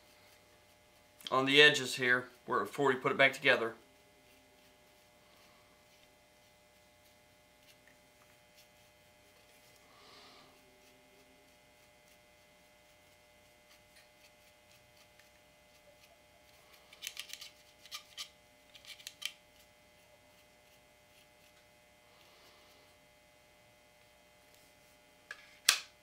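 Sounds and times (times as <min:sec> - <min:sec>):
brush scraping on metal: 0:03.2 - 0:21.6.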